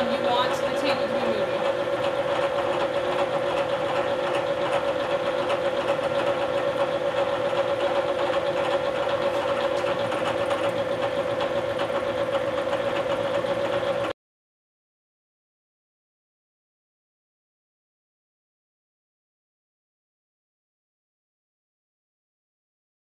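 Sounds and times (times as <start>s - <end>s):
milling machine cutting metal: 0.0s - 14.1s.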